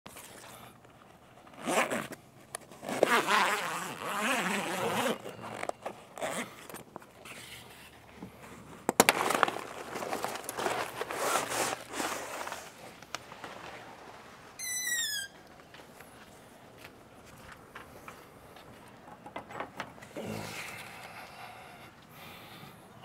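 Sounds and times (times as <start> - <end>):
zipper being pulled open: 1.5 - 7.8, 9.2 - 12.8.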